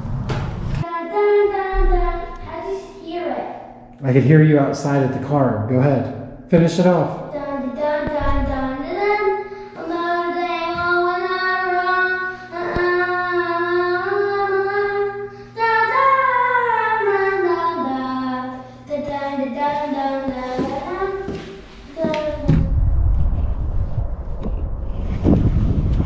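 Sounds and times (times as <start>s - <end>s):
steady low hum: 0.0s - 26.0s
child singing: 0.8s - 3.5s, 7.3s - 22.8s.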